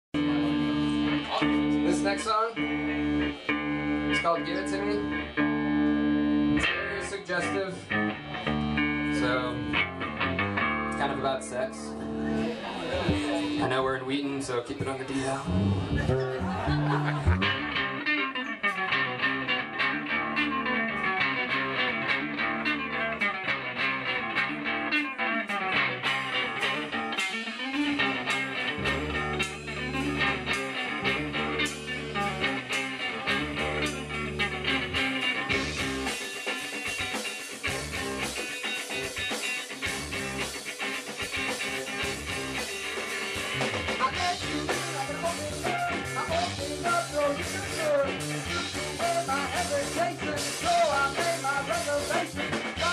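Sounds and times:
electric bass: 0.1 - 52.9
electric guitar: 0.2 - 52.9
drum kit: 12.0 - 13.8, 14.8 - 18.0, 25.5 - 52.9
lead vocal singing: 44.0 - 52.9.

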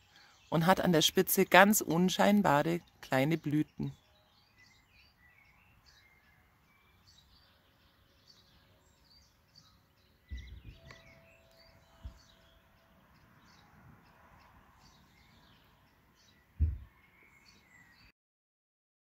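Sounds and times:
birds chirping: 0.0 - 18.1
short thump: 10.3 - 10.8, 16.6 - 16.9.

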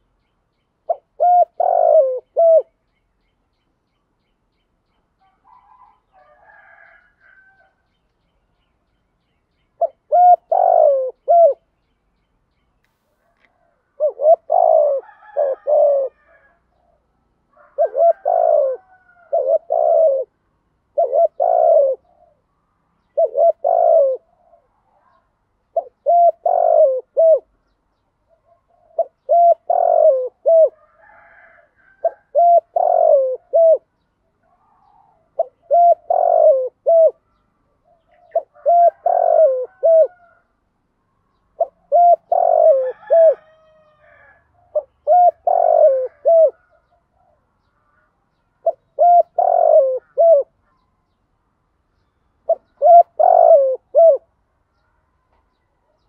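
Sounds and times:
dove cooing: 0.8 - 2.8, 9.8 - 11.7, 13.4 - 27.6, 28.3 - 40.5, 41.5 - 48.0, 48.6 - 50.8, 52.4 - 54.4.

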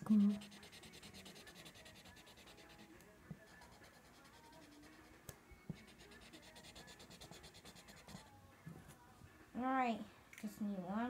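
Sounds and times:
felt-tip marker scribbling on paper: 0.1 - 8.3.

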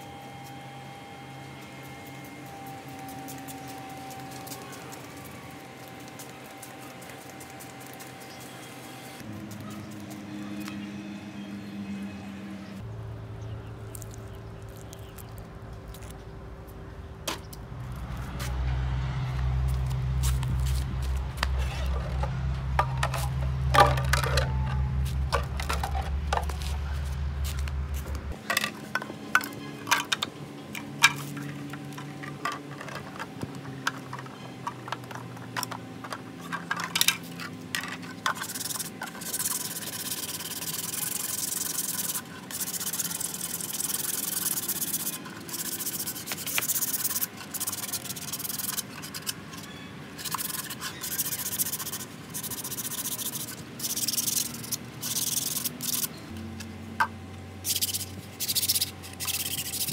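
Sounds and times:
low hum: 0.0 - 34.4, 50.2 - 59.9.

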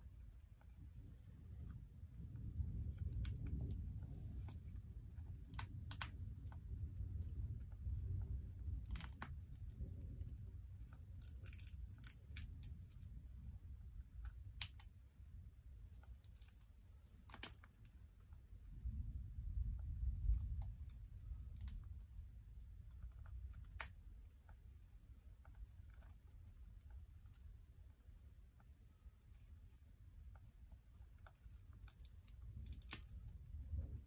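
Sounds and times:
low steady rumble: 0.0 - 34.0.

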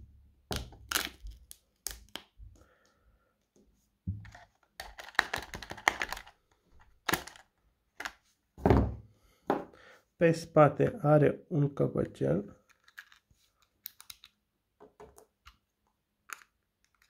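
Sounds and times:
plastic clicking and rattling: 4.2 - 8.2.

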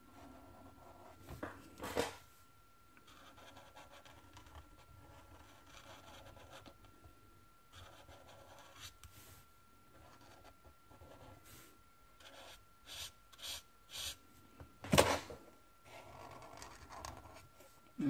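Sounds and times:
marker scratching on paper: 3.1 - 6.7, 7.7 - 9.0, 12.2 - 14.2.

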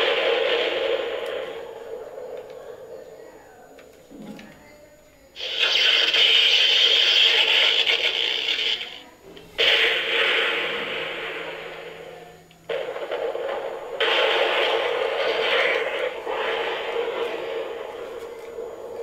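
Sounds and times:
toy speaker hissy electronic bursts: 5.4 - 12.1.

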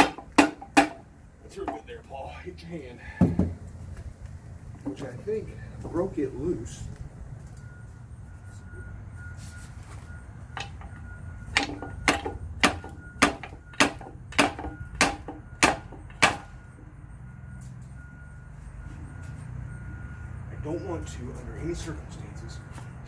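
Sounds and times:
pry bar knocking on metal: 0.0 - 1.0, 11.5 - 16.4.

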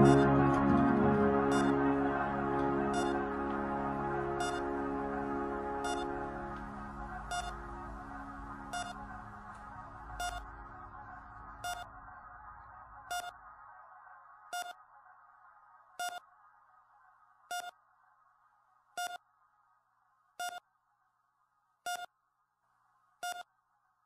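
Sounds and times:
music: 0.0 - 13.8.

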